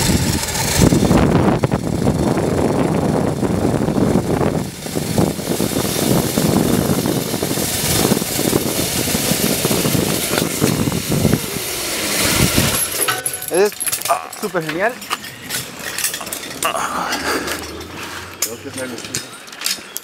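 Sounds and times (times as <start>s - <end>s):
wind buffeting microphone: 0.0s - 13.0s
trolley running along cable: 0.0s - 20.0s.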